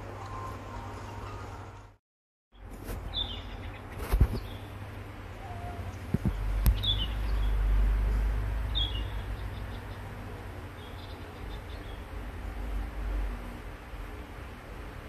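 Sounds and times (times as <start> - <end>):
high falling bird chirps: 6.7 - 7.7.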